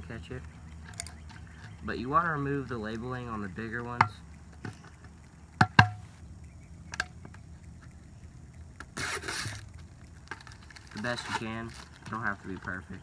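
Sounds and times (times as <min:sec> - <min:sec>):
plastic bottle crackling: 0:08.8 - 0:13.0
label tearing off bottle: 0:09.0 - 0:09.6.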